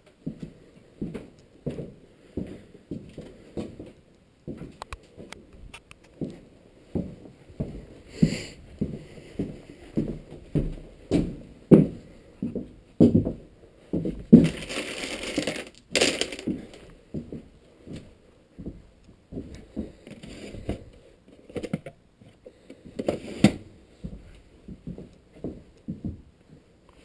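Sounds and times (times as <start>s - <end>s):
footsteps on hard floor: 6.0s - 15.2s, 16.4s - 20.9s.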